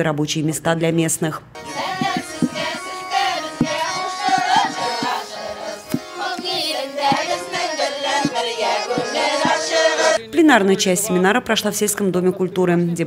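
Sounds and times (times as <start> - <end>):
low beats: 1.6 - 10.2
accordion: 1.6 - 11.2
group of voices singing: 1.6 - 11.5.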